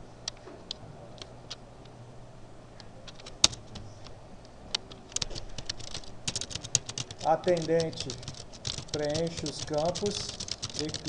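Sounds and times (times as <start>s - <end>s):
faint low hum: 0.0s - 11.0s
keyboard key clicks: 5.1s - 11.0s.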